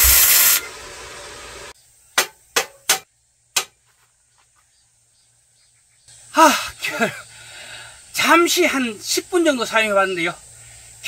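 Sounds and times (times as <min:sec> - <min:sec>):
welding hiss: 0:00.0 - 0:01.8
sharp metallic knocks: 0:02.2 - 0:03.8.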